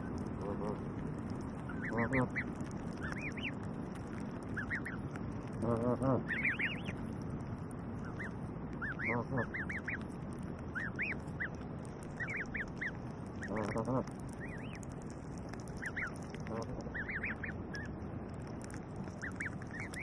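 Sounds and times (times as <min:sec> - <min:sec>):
goslings peeping: 0:00.0 - 0:20.0
geese calling: 0:01.6 - 0:07.0, 0:08.0 - 0:10.1, 0:10.7 - 0:14.8, 0:15.6 - 0:17.9, 0:18.7 - 0:20.0.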